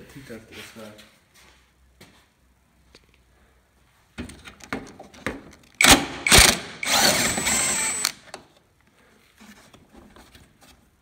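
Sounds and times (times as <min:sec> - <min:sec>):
cordless drill running: 0:05.8 - 0:08.2.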